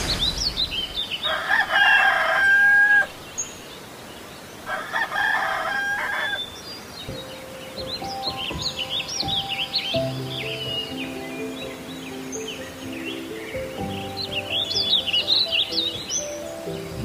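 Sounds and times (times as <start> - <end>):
small birds chirping: 0.0 - 17.0
rooster crowing: 1.2 - 3.2, 4.7 - 6.5.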